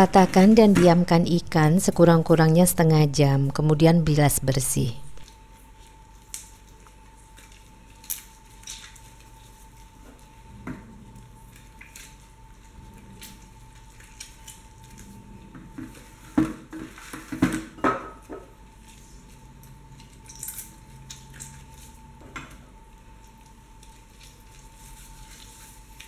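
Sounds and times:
dishes clattering and clinking: 0:15.8 - 0:18.5.

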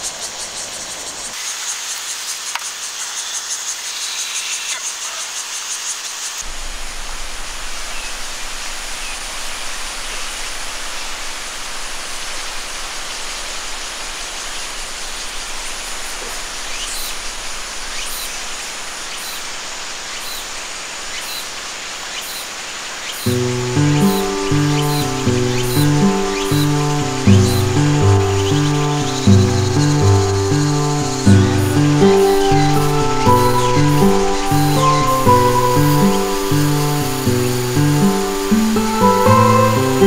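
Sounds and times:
river water rushing: 0:06.4 - 0:40.0
shrill pulsing hiss: 0:23.2 - 0:40.0
faint high chirps: 0:23.3 - 0:40.0.

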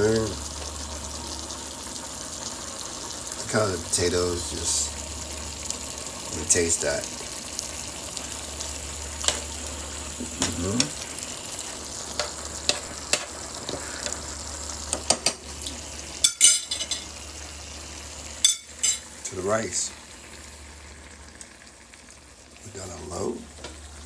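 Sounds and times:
food sizzling in a skillet: 0:00.0 - 0:24.0
metal spoon clinking against pan: 0:16.2 - 0:17.1, 0:18.4 - 0:19.0.

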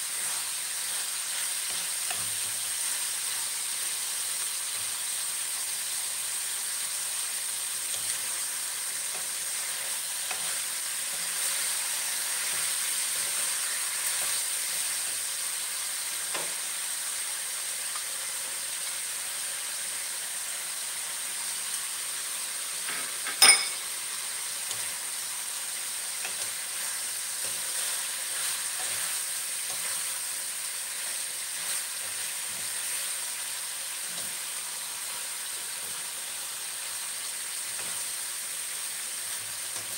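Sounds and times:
meat sizzling in a wok: 0:00.0 - 0:39.9.

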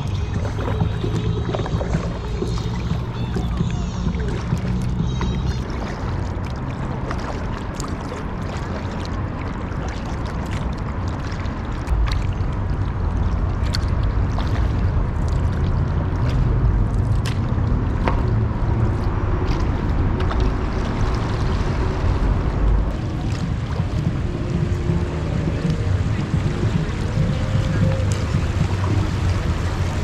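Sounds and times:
steady low rumble: 0:00.0 - 0:30.0
water splashing around a kayak: 0:00.0 - 0:30.0.

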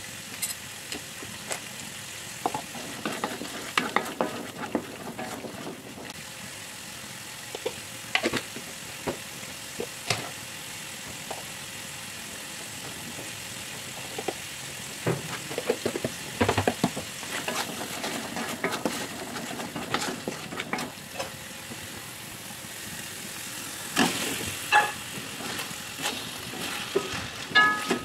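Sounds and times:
paste sizzling in a wok: 0:00.0 - 0:28.0
wooden spatula scraping a wok: 0:02.4 - 0:06.2, 0:15.1 - 0:21.4, 0:24.0 - 0:28.0.

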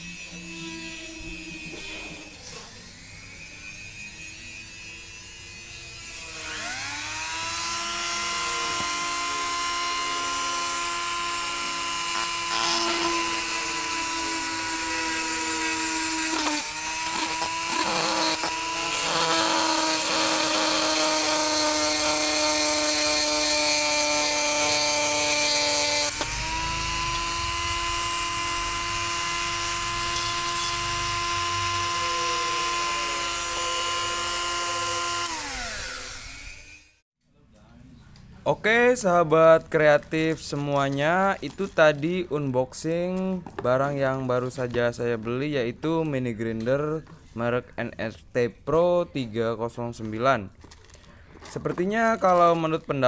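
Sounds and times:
mini grinder whining: 0:00.0 - 0:37.0.

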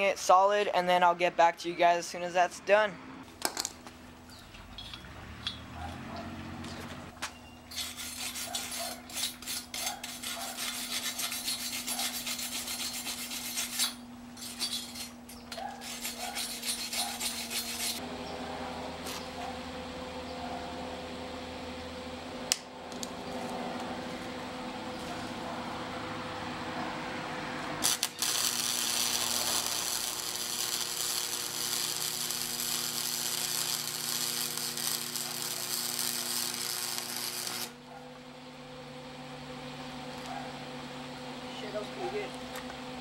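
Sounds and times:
welder hum: 0:06.3 - 0:39.0
welding arc crackling: 0:27.8 - 0:37.8.

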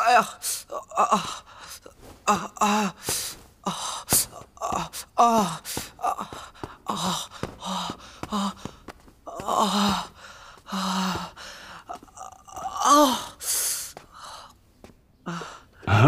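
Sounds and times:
man gasping and moaning: 0:00.0 - 0:14.5, 0:15.3 - 0:16.0.

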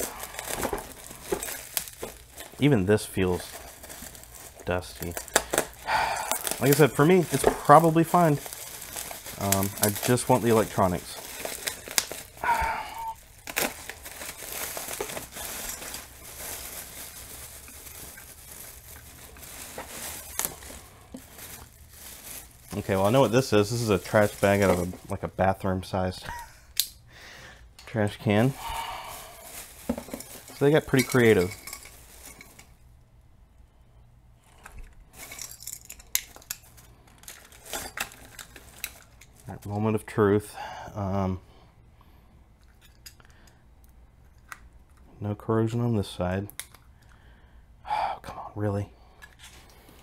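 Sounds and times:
plastic bags crinkling: 0:00.0 - 0:25.6, 0:28.0 - 0:32.8, 0:34.6 - 0:40.0.

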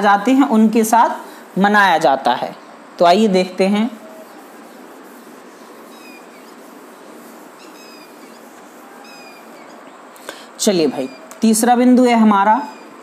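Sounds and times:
background hiss: 0:00.0 - 0:13.0
faint high squeaks: 0:05.8 - 0:06.7, 0:07.6 - 0:10.0, 0:10.8 - 0:11.5, 0:12.5 - 0:13.0.

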